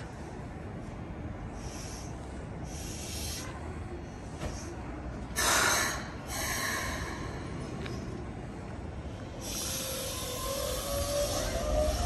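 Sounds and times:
train low rumble: 0.0s - 12.0s
air brakes hissing: 1.6s - 3.7s, 5.4s - 7.6s, 9.2s - 12.0s.

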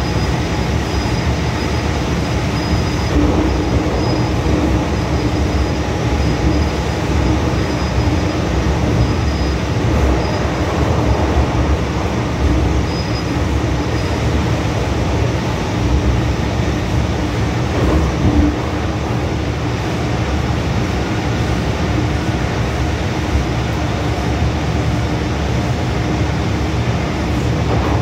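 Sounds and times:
train wheels rumbling on rail: 0.0s - 28.0s.

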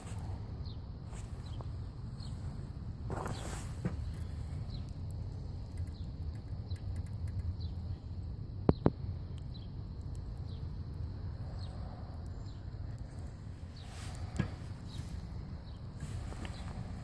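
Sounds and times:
low steady rumble: 0.0s - 17.0s
small birds chirping: 0.0s - 17.0s
wood fire crackling: 0.0s - 17.0s
sharp clicks: 3.9s - 7.9s, 8.6s - 16.6s.

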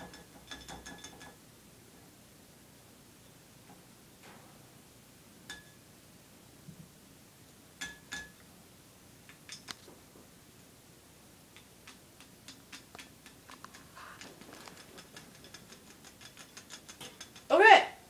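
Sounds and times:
light clicks and taps: 11.5s - 17.5s.

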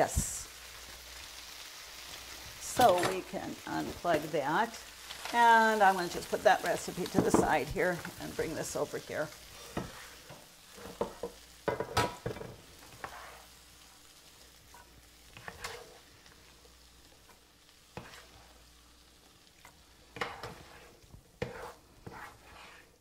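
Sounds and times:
metal spoon scraping skillet: 6.0s - 13.6s, 14.7s - 16.6s, 17.2s - 18.6s, 19.6s - 23.0s.

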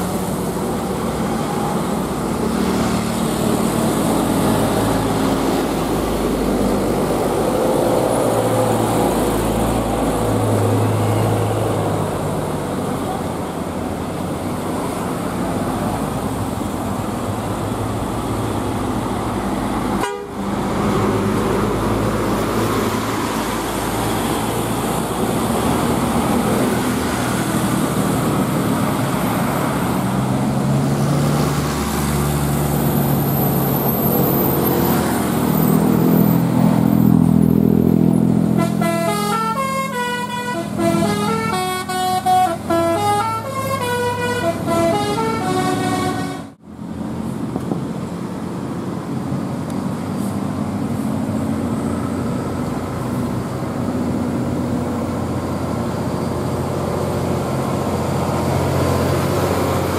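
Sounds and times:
diesel bus engine: 0.0s - 59.9s
passing traffic: 0.0s - 59.9s
multi-tone bus horn tune: 20.0s - 20.4s, 38.5s - 46.6s.

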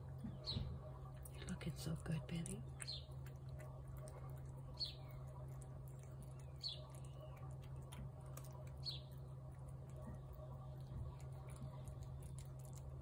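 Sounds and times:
steady low hum: 0.0s - 13.0s
bird chirping: 0.1s - 0.9s, 2.6s - 3.2s, 4.7s - 5.3s, 6.2s - 7.5s, 8.8s - 9.3s
cat chewing and licking: 1.1s - 13.0s.

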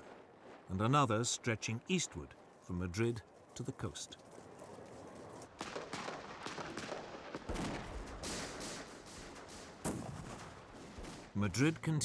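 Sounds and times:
gunfire shots and bursts: 5.5s - 11.4s.

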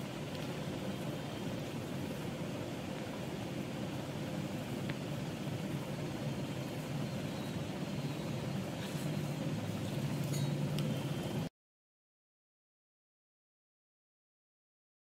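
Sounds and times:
low machine rumble: 0.0s - 11.5s.

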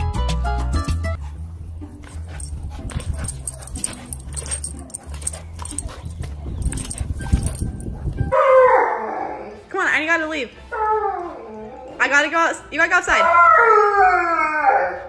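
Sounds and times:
dog whimpering and yipping: 2.1s - 9.5s.

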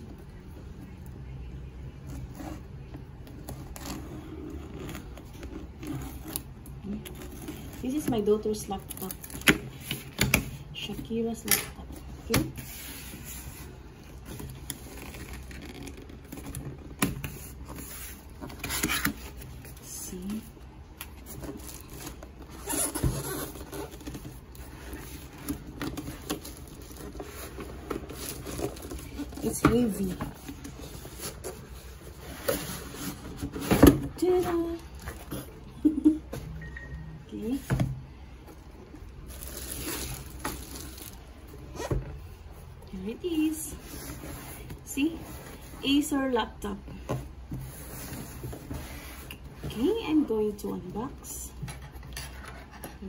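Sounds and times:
cardboard box scraping and rustling: 21.2s - 35.6s, 47.6s - 50.0s.

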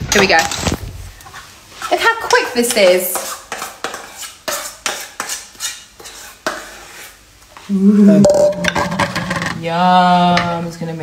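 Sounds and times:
metal pans clinking and scraping: 8.2s - 9.6s.

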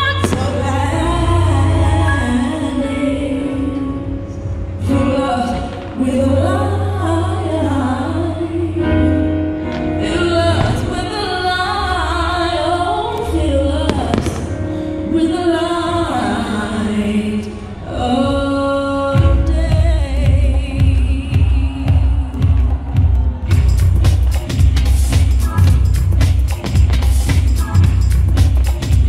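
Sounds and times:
song with choir backing: 0.0s - 13.3s
firework bangs: 0.1s - 0.8s, 13.9s - 14.7s.

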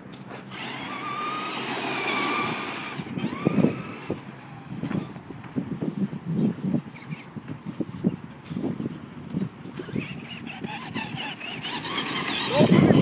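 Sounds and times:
toy truck motor whining: 0.3s - 5.2s, 9.8s - 13.0s.

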